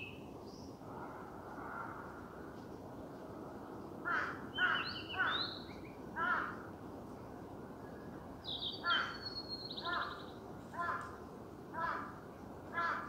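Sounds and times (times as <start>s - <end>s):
steady outdoor hiss: 0.0s - 13.0s
crow cawing: 4.0s - 5.4s, 6.2s - 6.7s, 10.8s - 11.1s, 11.8s - 13.0s.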